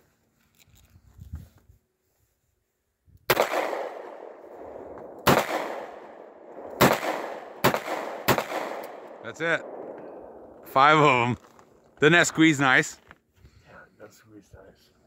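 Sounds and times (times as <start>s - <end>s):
revolver shots with echo: 3.3s - 10.5s.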